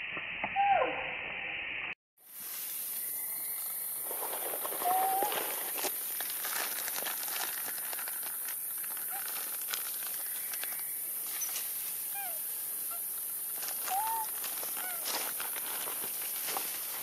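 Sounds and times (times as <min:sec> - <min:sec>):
steady high hiss: 0:01.4 - 0:17.0
rustling in grass and leaves: 0:02.2 - 0:17.0
faint sliding calls: 0:04.7 - 0:05.7, 0:13.7 - 0:15.3.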